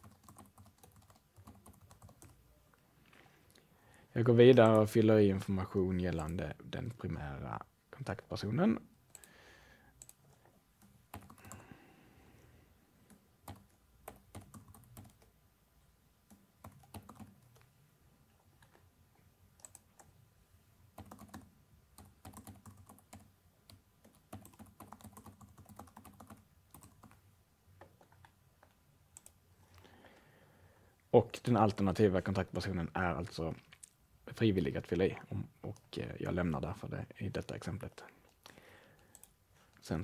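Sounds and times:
faint keyboard typing: 0.0 - 2.8, 3.4 - 7.2, 9.0 - 11.8, 13.0 - 15.4, 16.1 - 20.3, 20.9 - 30.3, 33.1 - 34.0, 37.4 - 40.0.

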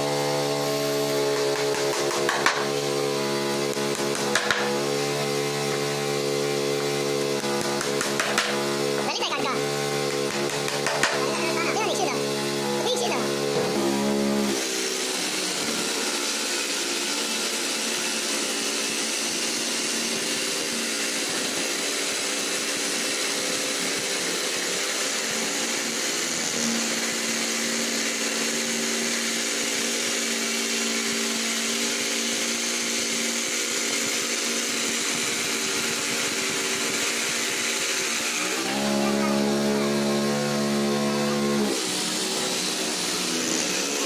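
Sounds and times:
jigsaw blade rasping through board: 0.0 - 3.0, 3.6 - 12.2, 12.8 - 44.0
electric jigsaw motor hum: 0.0 - 44.0.

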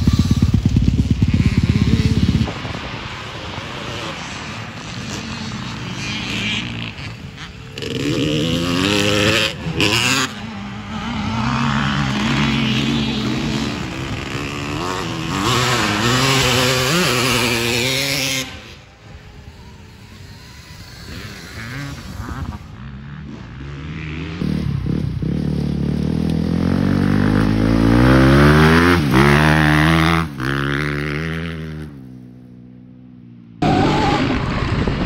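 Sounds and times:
motorcycle engine revving: 0.0 - 35.0.

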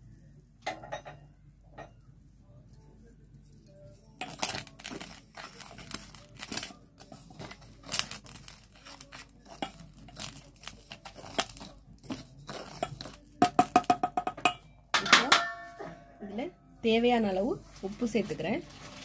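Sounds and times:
ladle scraping a steel bowl: 4.2 - 13.4.

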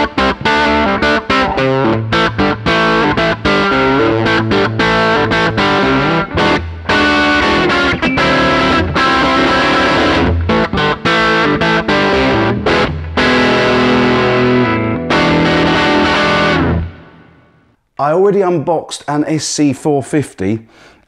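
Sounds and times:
distorted electric guitar riff: 0.0 - 17.6.

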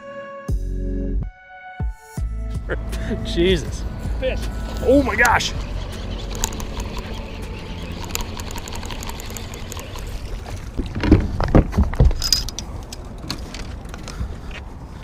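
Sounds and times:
wind: 2.2 - 15.0
water around boat: 4.3 - 15.0.

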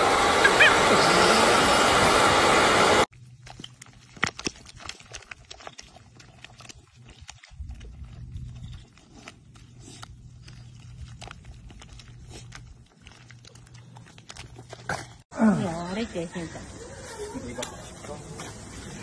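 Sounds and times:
loud burst of noise: 0.0 - 3.1
dog squelching in wet mud: 3.1 - 15.3.

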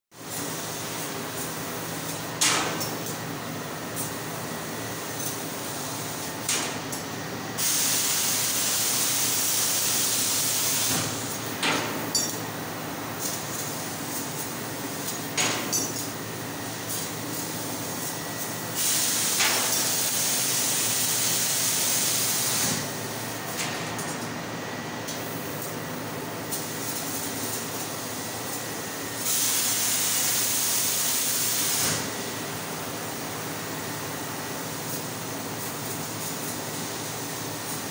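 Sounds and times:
machine hum and hiss: 0.2 - 37.9
gas jet hissing: 7.6 - 10.9.

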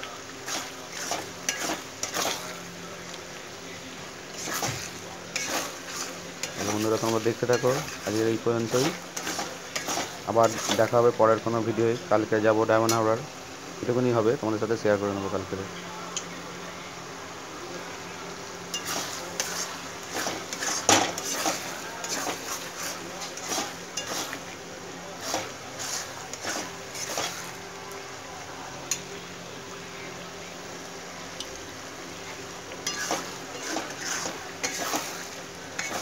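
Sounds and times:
rice sizzling in oil: 0.0 - 36.0
spatula scraping a wok: 0.4 - 2.7, 4.3 - 10.9, 18.7 - 24.5, 25.2 - 27.6, 32.8 - 36.0.

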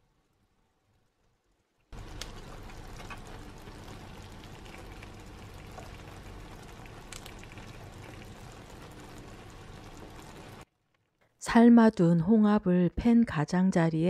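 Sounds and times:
paella bubbling and sizzling: 0.0 - 11.2.

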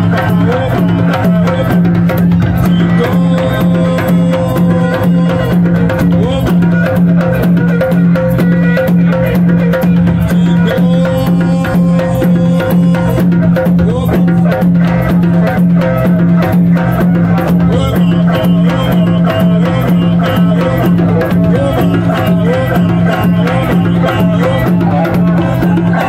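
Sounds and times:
djembe hand drums: 0.0 - 26.0.

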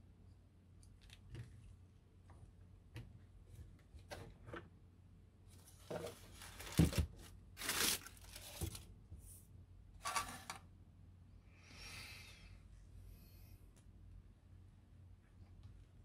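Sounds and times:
plastic parts rustling and scraping: 5.5 - 8.9, 10.0 - 10.6.

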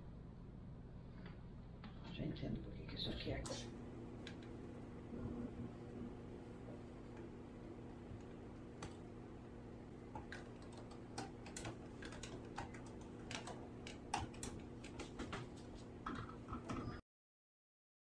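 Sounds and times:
steady low hum: 0.0 - 17.0
light clicks and taps: 8.0 - 16.9.

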